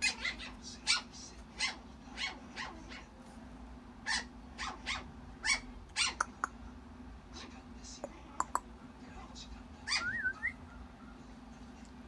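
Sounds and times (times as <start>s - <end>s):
puppy whining: 4.0s - 6.4s, 9.9s - 11.2s.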